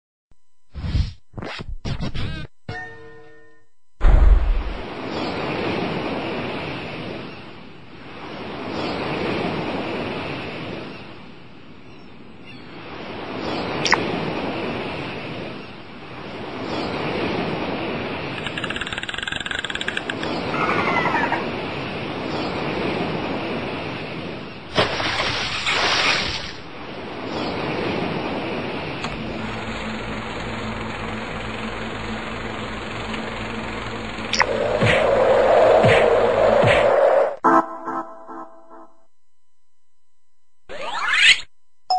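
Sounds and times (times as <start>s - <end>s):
rush of noise: 4.0s - 7.2s, 27.0s - 37.4s
sea waves washing in: 4.4s - 11.6s, 12.7s - 37.4s
low mechanical hum: 27.9s - 36.5s.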